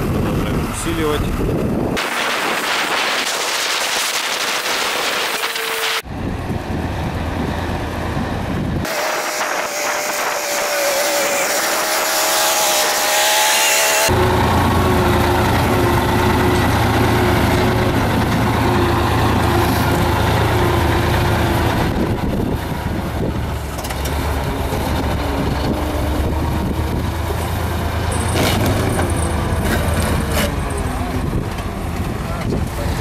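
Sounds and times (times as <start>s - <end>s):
truck engine running: 12.9s - 33.0s
truck rolling over road slabs: 14.1s - 33.0s.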